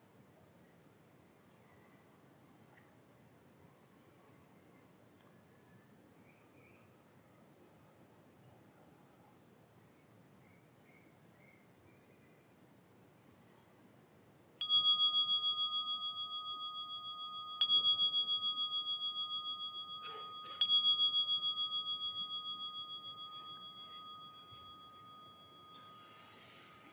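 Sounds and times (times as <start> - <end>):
meditation bell ringing: 14.6 - 26.9.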